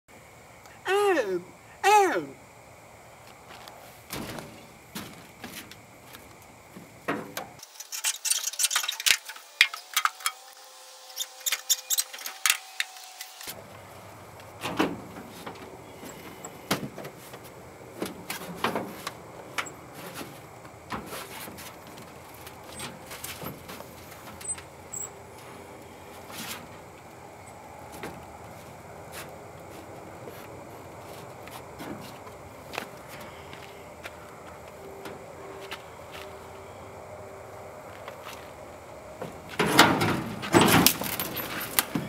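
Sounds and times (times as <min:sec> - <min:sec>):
scooter knocking and rattling: 0:39.2 - 0:42.0.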